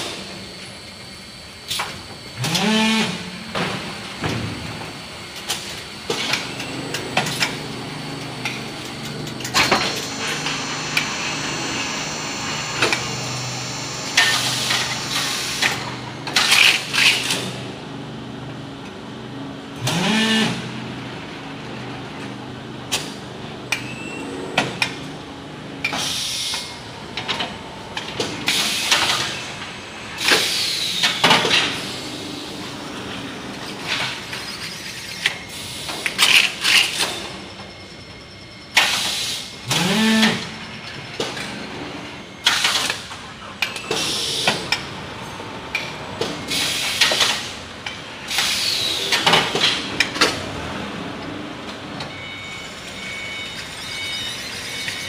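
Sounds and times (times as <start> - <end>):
machine motor hum: 0.2 - 25.8
rising whine: 3.2 - 16.2.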